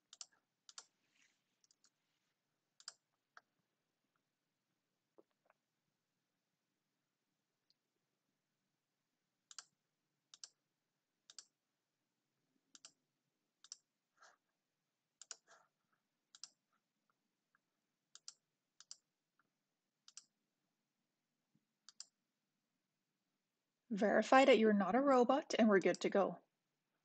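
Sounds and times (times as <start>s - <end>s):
computer mouse clicking: 0.1s - 0.9s, 1.6s - 2.0s, 2.8s - 3.0s, 9.5s - 9.7s, 10.3s - 10.6s, 11.3s - 11.5s, 12.7s - 13.0s, 13.6s - 13.9s, 15.2s - 15.5s, 16.3s - 16.6s, 18.1s - 19.0s, 20.0s - 20.3s, 21.8s - 22.2s, 25.9s - 26.1s.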